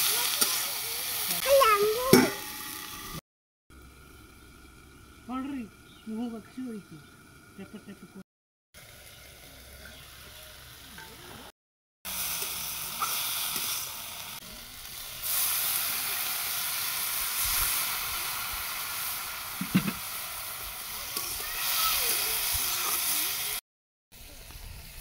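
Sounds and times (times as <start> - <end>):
vegetables sizzling in hot oil: 0.0 - 3.2, 8.8 - 11.5, 12.1 - 23.6, 24.2 - 25.0.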